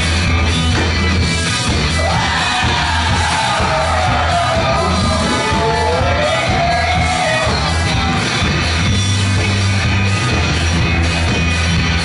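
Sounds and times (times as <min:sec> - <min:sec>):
live rock band playing: 0:00.0 - 0:12.0
man wailing vocal: 0:03.8 - 0:07.5.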